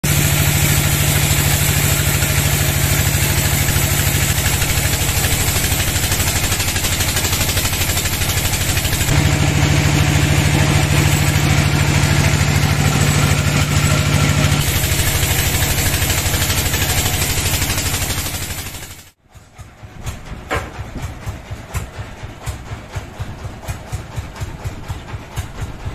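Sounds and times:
band saw cutting log: 0:00.0 - 0:19.2
low saw drive drone: 0:00.1 - 0:19.1.

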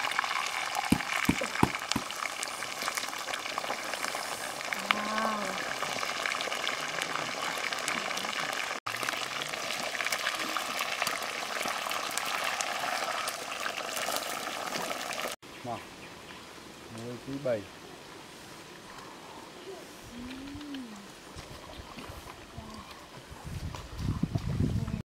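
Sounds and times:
fish sizzling in hot oil: 0:00.0 - 0:15.4.

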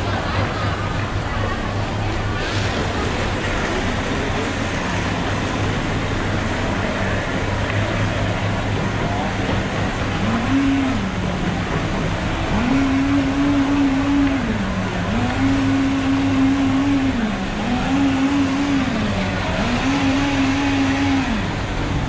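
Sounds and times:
blender motor running: 0:10.0 - 0:22.0.

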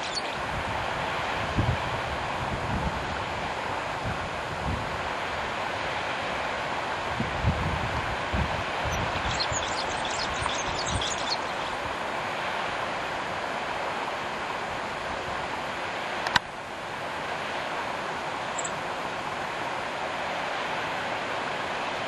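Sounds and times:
bird chirps: 0:00.0 - 0:00.4, 0:08.9 - 0:11.7, 0:18.6 - 0:18.8
rushing outdoor noise: 0:00.0 - 0:22.0.

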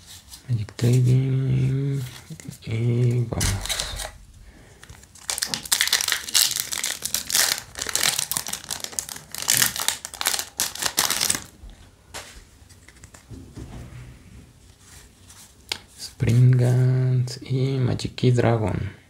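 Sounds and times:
foil wrapper crinkling: 0:03.4 - 0:04.2, 0:04.8 - 0:11.6.

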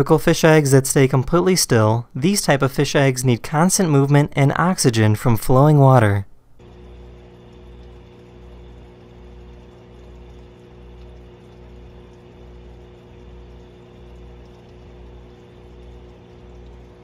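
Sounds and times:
aquarium pump humming: 0:00.0 - 0:17.0
faint water hiss: 0:06.4 - 0:17.0.

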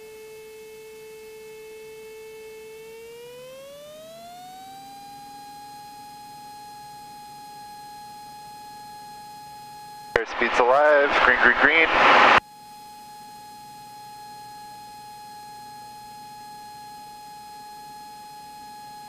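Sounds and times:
electrical whine rising in pitch: 0:00.6 - 0:05.9, 0:10.2 - 0:12.4.

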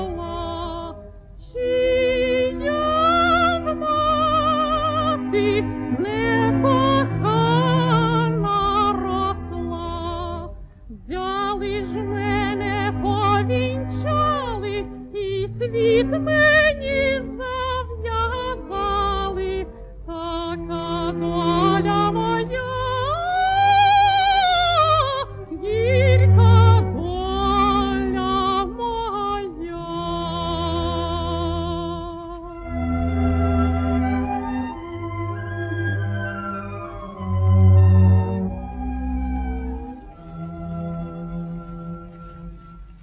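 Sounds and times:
woman singing with vibrato: 0:00.0 - 0:32.7
sustained low accompaniment: 0:11.6 - 0:43.0.

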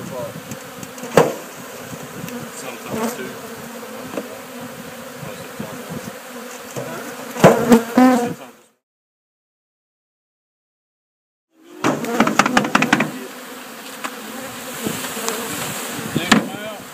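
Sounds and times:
bees buzzing: 0:00.0 - 0:08.8, 0:11.6 - 0:16.9
sharp knocks: 0:01.1 - 0:01.4, 0:11.8 - 0:13.2, 0:16.3 - 0:16.6.

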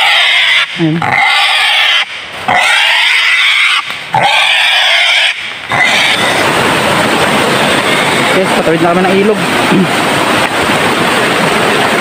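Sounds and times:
wild boar squealing: 0:00.0 - 0:06.6, 0:07.6 - 0:08.8
rocky stream rushing: 0:05.0 - 0:12.0.

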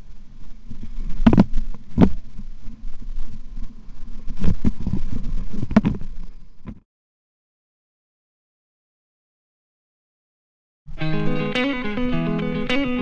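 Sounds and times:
wind buffeting microphone: 0:00.0 - 0:06.8.

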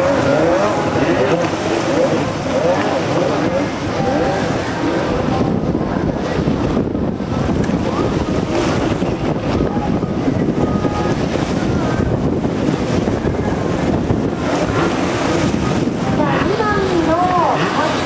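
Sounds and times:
distant jet ski engines whining: 0:00.0 - 0:18.0
wind buffeting microphone: 0:00.0 - 0:18.0.

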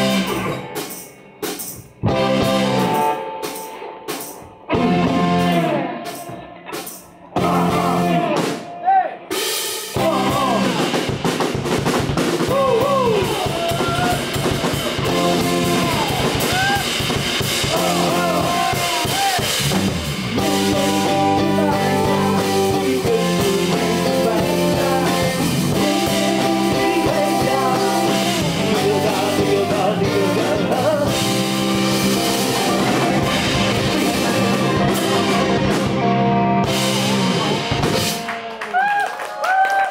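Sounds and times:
live blues band playing: 0:00.0 - 0:38.8.

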